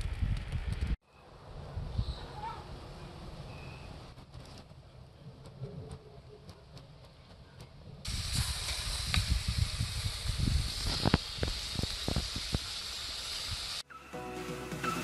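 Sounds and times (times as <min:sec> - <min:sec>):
flames hissing: 0:08.0 - 0:13.8.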